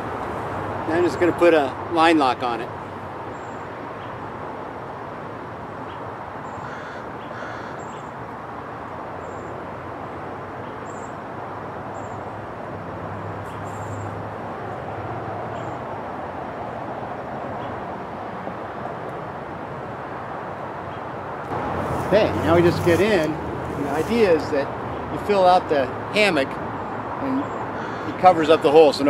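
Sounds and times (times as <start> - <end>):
steady hiss: 21.7 - 24.7.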